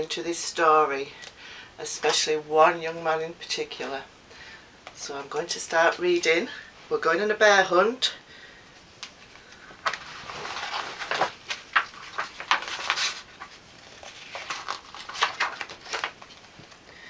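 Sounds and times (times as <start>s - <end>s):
book pages turning: 9.0s - 16.8s.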